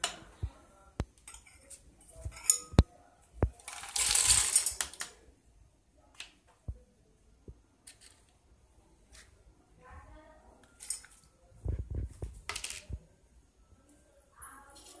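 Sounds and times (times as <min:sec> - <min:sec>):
peanuts rattling in metal jar: 0:03.6 - 0:05.1.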